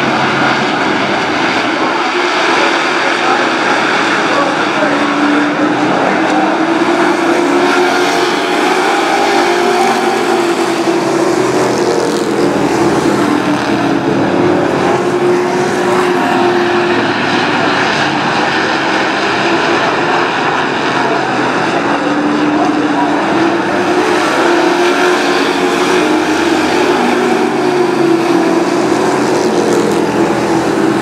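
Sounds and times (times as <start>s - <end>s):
racing truck engines droning: 0.0s - 31.0s.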